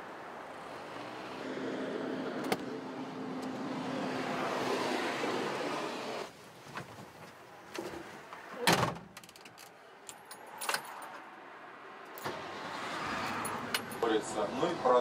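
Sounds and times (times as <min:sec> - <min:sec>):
car driving past: 0:11.7 - 0:15.0.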